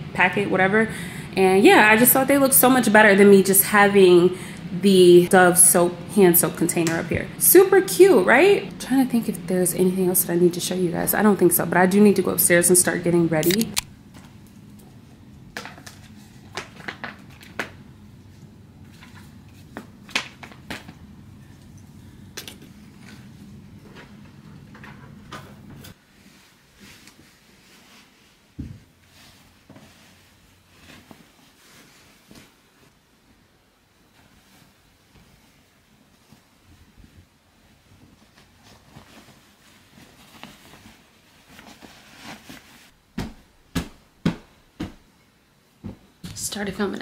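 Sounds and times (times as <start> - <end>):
low room hum: 0.0 - 47.0
bedding rustling: 25.9 - 46.8.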